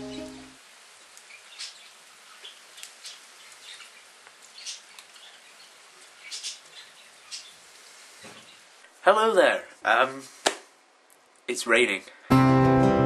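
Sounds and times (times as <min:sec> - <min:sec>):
light rain hiss: 0:00.0 - 0:12.3
raindrops ticking and tapping: 0:00.1 - 0:09.0.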